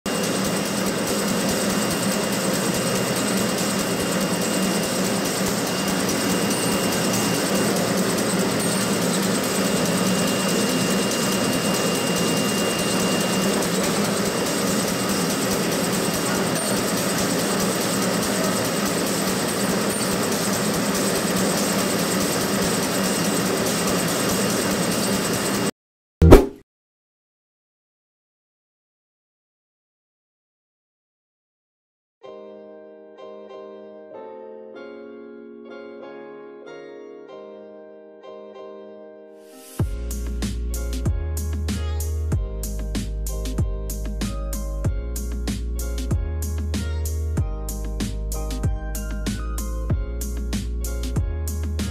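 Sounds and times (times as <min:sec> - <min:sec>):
folding machine humming: 0:00.1 - 0:25.7.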